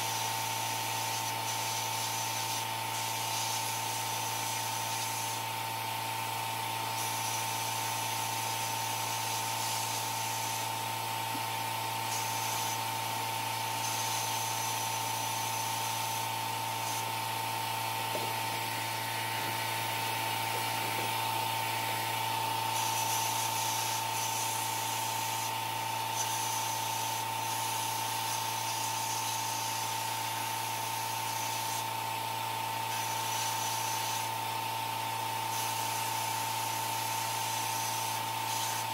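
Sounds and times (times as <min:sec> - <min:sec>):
hiss: 0:00.0 - 0:05.4, 0:06.9 - 0:10.7, 0:12.0 - 0:12.8, 0:13.7 - 0:17.1, 0:22.7 - 0:31.9, 0:32.9 - 0:34.4, 0:35.4 - 0:38.9
small power tool running: 0:00.0 - 0:38.9.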